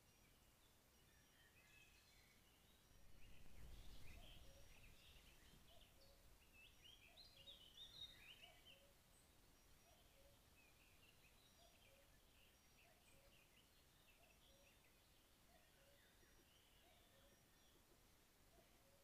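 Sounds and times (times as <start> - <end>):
faint songbirds chirping: 0.0 - 19.0.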